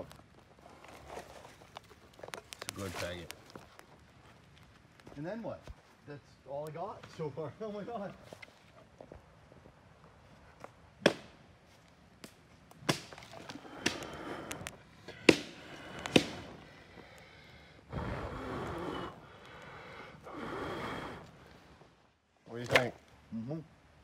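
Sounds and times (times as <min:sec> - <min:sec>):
dry sticks cracking: 0:00.0 - 0:05.2, 0:10.6 - 0:17.6, 0:18.6 - 0:20.5.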